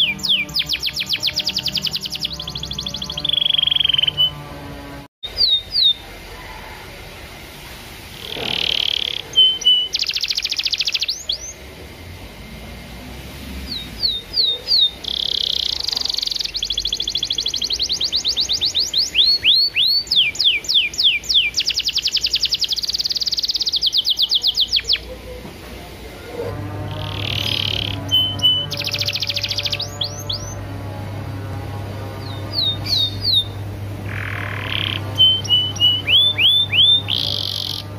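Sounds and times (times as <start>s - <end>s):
canary singing: 0.0s - 6.6s, 8.2s - 11.7s, 13.5s - 25.4s, 26.2s - 37.9s.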